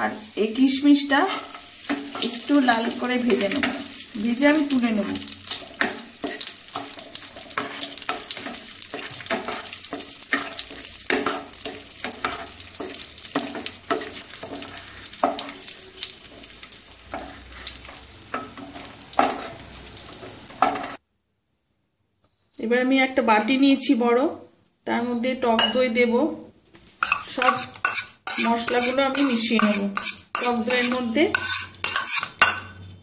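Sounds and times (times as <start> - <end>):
frying in hot ghee sizzling: 0.0 - 21.0, 25.6 - 33.0
wooden spatula scraping pan: 1.1 - 4.0, 5.0 - 21.0, 27.0 - 32.8.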